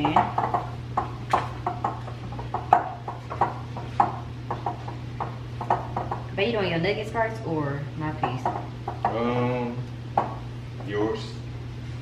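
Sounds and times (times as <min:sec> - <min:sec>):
fish and fingers tapping glass bowl: 0:00.0 - 0:06.3, 0:08.2 - 0:09.2, 0:10.1 - 0:10.5
steady low hum: 0:00.0 - 0:12.0.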